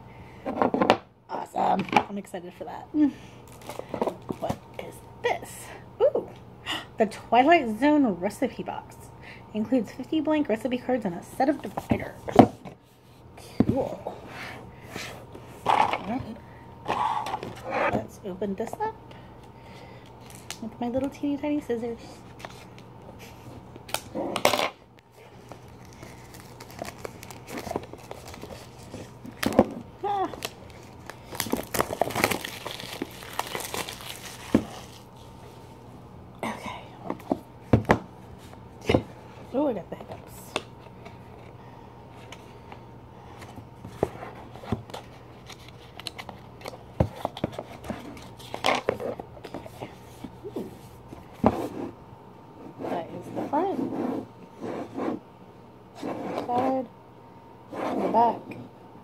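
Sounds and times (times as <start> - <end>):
box and wrapping rustling: 25.2 - 35.7
scissors cutting packaging: 30.3 - 35.0.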